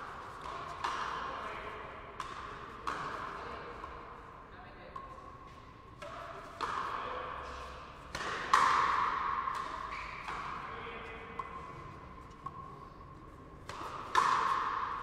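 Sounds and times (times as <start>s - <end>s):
ball struck by rackets: 0.0s - 1.4s, 2.1s - 4.0s, 6.0s - 10.6s, 13.6s - 15.0s
ball smacking against wall: 13.7s - 14.8s.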